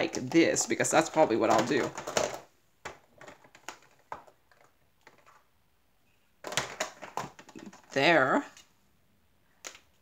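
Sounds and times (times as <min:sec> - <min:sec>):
plastic jars clicking on a case: 0:01.0 - 0:05.3.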